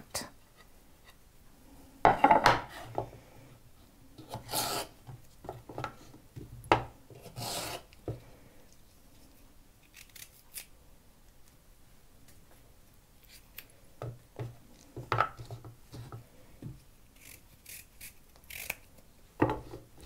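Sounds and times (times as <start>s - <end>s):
food scraping on wooden cutting board: 4.2s - 5.0s.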